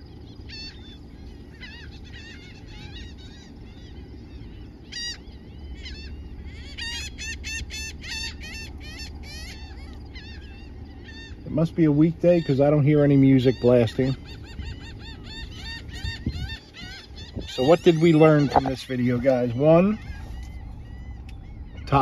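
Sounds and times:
seabirds calling harshly: 0.0 - 22.0
low rumble: 14.2 - 22.0.

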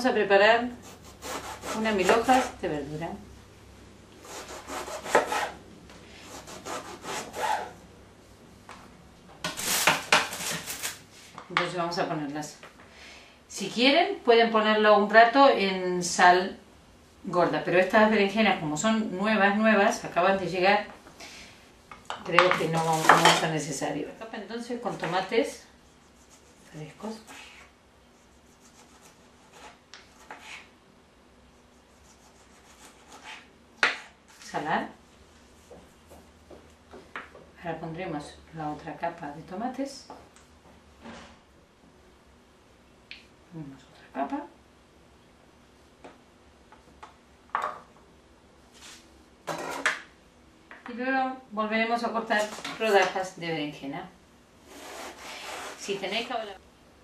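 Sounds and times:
knife sawing through eggplant: 0.8 - 2.6, 4.2 - 5.6, 6.2 - 7.8, 22.8 - 23.4, 25.8 - 27.6, 28.2 - 30.7, 31.7 - 34.1, 54.7 - 56.5.

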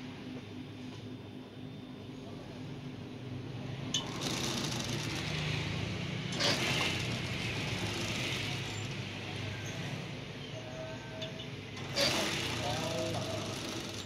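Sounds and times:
rapid needle chatter: 4.0 - 9.1, 11.8 - 14.0
sewing machine motor hum: 4.0 - 9.2, 11.8 - 14.0.

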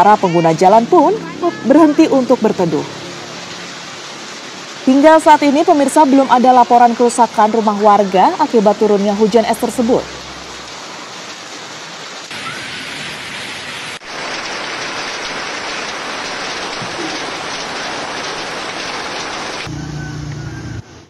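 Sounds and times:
hail and rain pelting down: 0.0 - 19.7
engine hum: 15.4 - 21.0.

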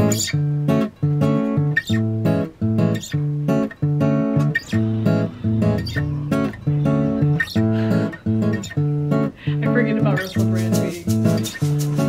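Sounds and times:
guitar strumming chords: 0.0 - 12.0.

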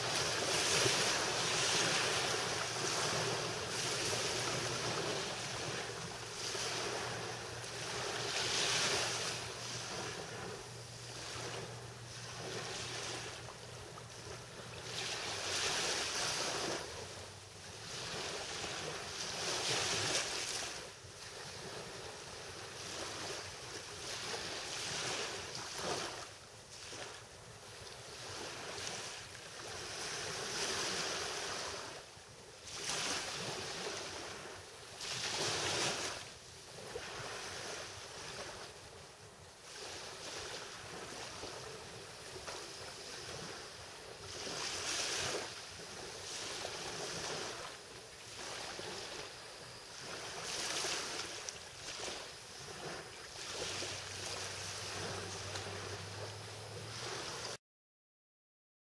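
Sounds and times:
small waves lapping on sand: 0.0 - 57.6.

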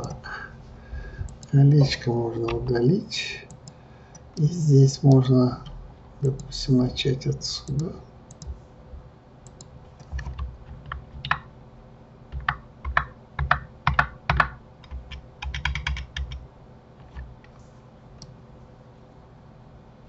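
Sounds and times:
keyboard keys clicking: 9.5 - 11.5, 12.3 - 16.4.

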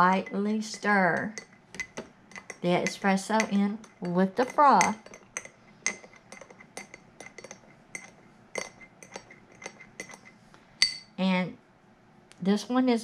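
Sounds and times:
spoon clinking in glass mug: 1.4 - 11.1.

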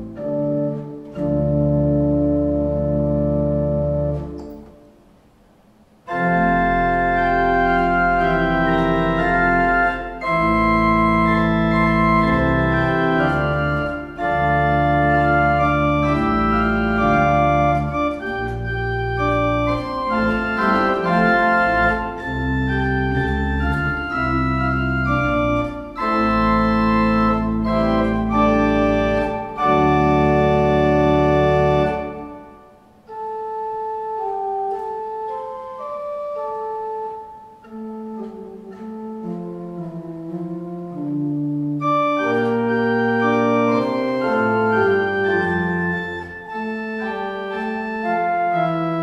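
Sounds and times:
organ playing slow chords: 0.0 - 49.0.

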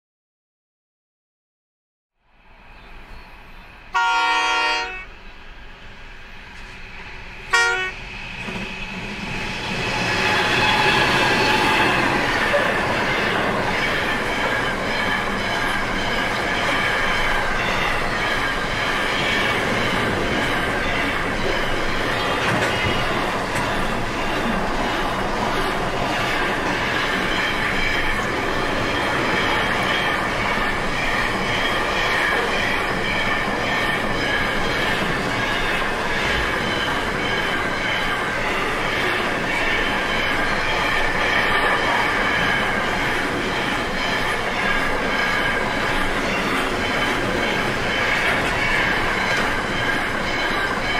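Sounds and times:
locomotive horn blast: 3.9 - 5.2, 7.5 - 8.0
train wheels on rails clattering: 6.5 - 50.9.

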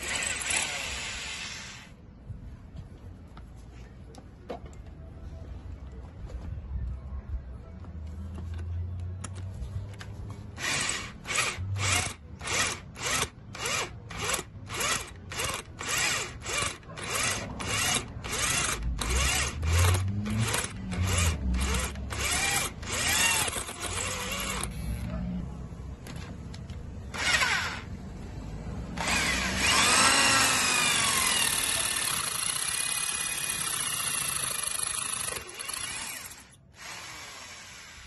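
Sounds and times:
electric drill drilling metal: 0.0 - 1.9, 10.6 - 24.8, 29.0 - 38.0.

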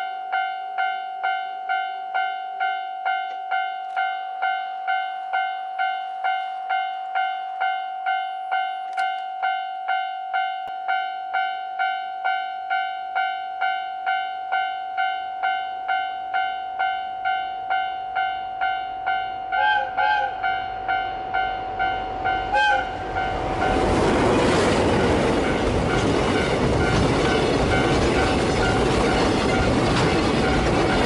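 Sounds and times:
level-crossing bell clanging: 0.0 - 19.7, 20.4 - 31.0
locomotive horn blasts: 19.4 - 23.8
train rumble and clatter: 20.4 - 31.0.

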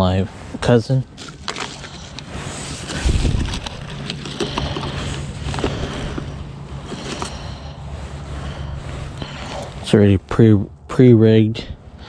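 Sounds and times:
fishing gear rustling and clicking: 1.0 - 9.9.

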